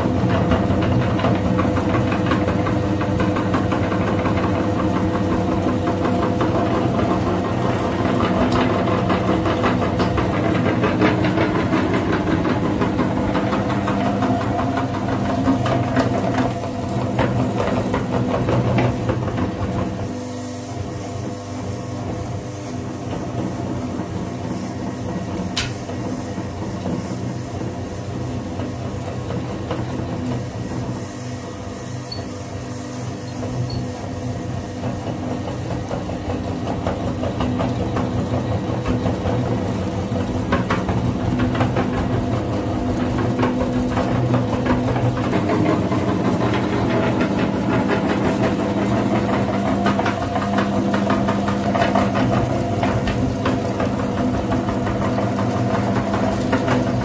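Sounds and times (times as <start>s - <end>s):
meat grinder motor hum: 0.0s - 57.0s.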